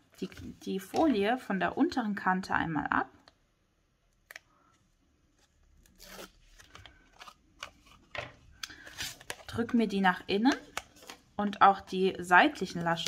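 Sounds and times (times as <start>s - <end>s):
tape liner being peeled: 5.4s - 7.4s
paper rustling and crinkling: 5.4s - 9.8s, 10.5s - 11.3s.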